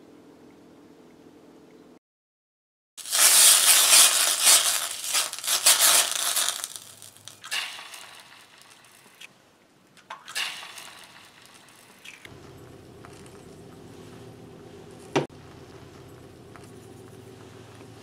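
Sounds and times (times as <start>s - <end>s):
butter sizzling in a frying pan: 3.0s - 9.2s
eggs dropping into hot fat: 3.0s - 9.2s.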